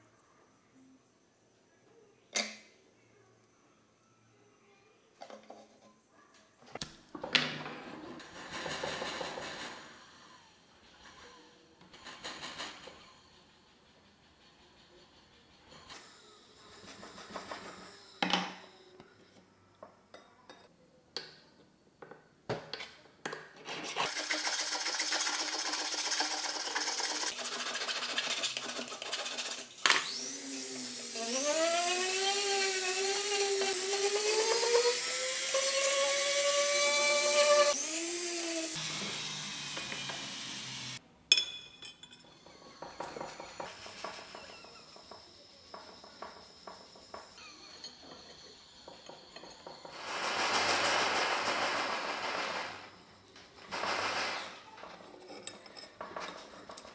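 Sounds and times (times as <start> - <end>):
rotary tool cutting metal rod: 28.4 - 41.0
steady hissing noise: 42.2 - 54.6.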